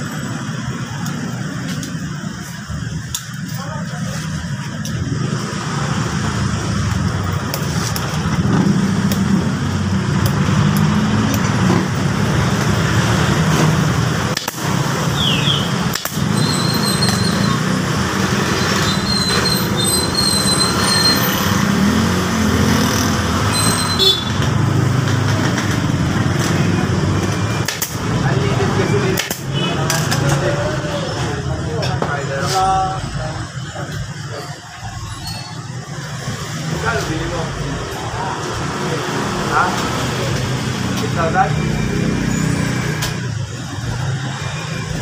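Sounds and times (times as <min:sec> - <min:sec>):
traffic rumble: 0:00.0 - 0:45.0.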